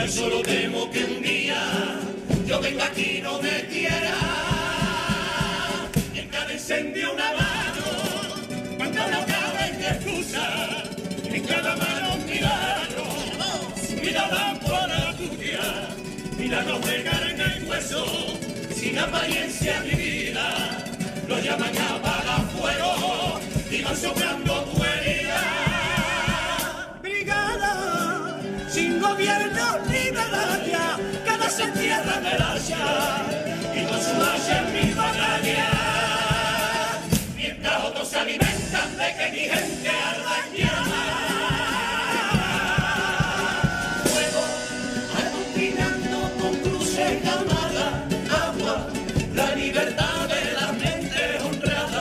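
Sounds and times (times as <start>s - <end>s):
drum strokes: 0.0s - 27.0s, 27.9s - 52.0s
chorus singing with vibrato: 0.0s - 52.0s
guitar: 0.0s - 52.0s
rhythmic hand-clapping: 0.3s - 0.8s, 39.4s - 40.1s.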